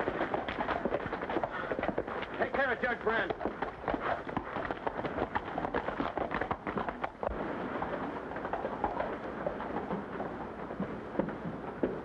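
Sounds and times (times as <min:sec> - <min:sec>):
horse hooves on dirt: 0:00.0 - 0:12.0
old film soundtrack hiss: 0:06.7 - 0:12.0.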